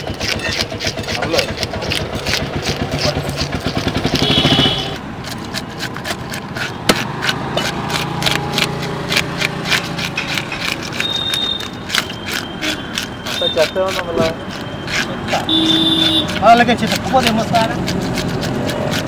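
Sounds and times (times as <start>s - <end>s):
engine running: 0.0s - 13.2s
scraping fish scales: 0.0s - 19.0s.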